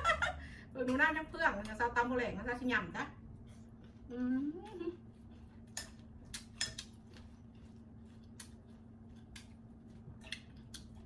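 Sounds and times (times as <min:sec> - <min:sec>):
steady low hum: 0:00.0 - 0:11.0
crunchy chewing: 0:03.4 - 0:11.0.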